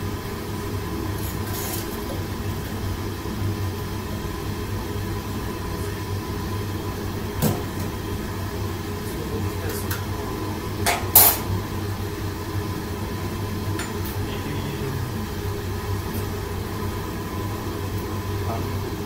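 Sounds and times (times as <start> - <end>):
low rumble of kitchen ventilation: 0.0 - 19.0.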